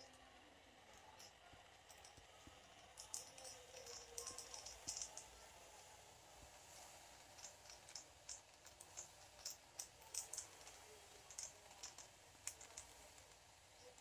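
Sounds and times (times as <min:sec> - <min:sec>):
crackling clicks of fizzing powder: 0:00.0 - 0:14.0.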